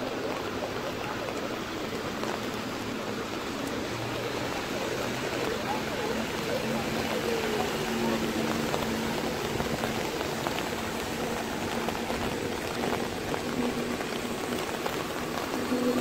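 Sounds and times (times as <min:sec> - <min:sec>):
heavy rain on flooded street: 0:00.0 - 0:16.0.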